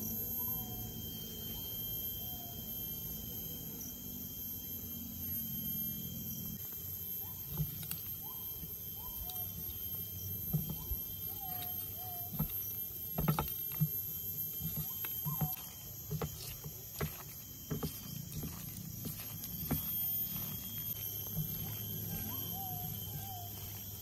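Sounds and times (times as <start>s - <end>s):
faint bird calls: 10.5s - 12.7s, 21.6s - 23.6s.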